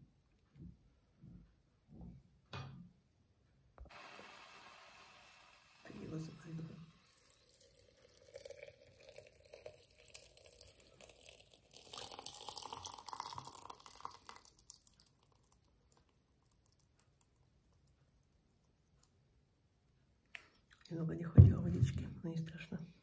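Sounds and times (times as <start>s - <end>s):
water pouring into teapot: 3.9s - 17.4s
water dripping: 6.5s - 19.2s.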